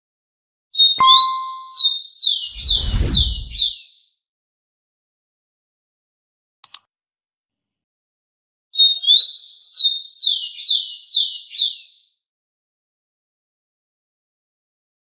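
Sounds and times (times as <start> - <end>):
sparrow singing: 1.0 - 2.6.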